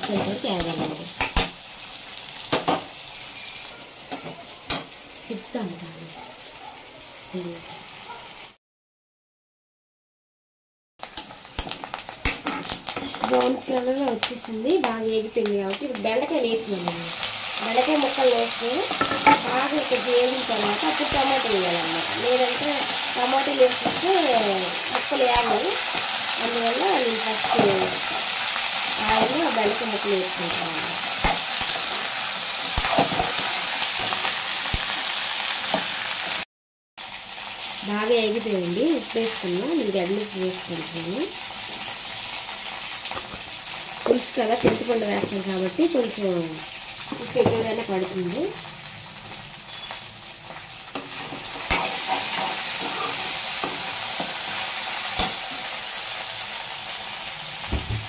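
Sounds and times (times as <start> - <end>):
vegetables sizzling in pan: 0.0 - 8.6, 11.0 - 58.0
spoon scraping pan: 27.0 - 30.6, 50.9 - 55.6.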